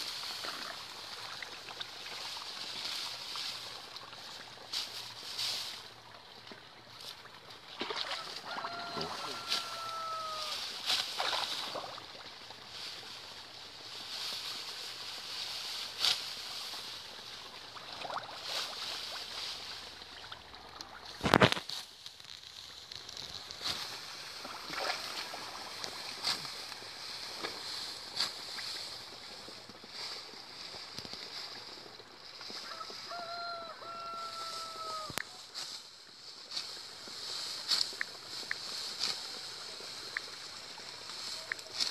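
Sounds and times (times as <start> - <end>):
rice stalks rustling: 0.0 - 6.0, 6.9 - 41.9
stalks snapping and crackling: 21.2 - 24.1, 41.5 - 41.9.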